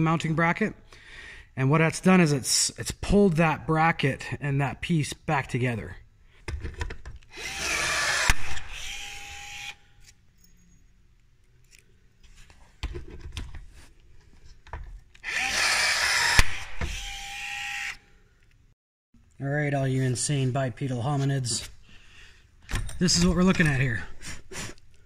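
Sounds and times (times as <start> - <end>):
power drill drilling metal: 7.3 - 9.8, 15.2 - 18.0.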